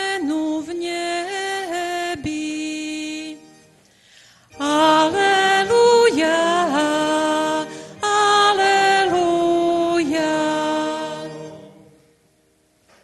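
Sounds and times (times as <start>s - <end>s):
liturgical chant singing: 4.6s - 12.3s.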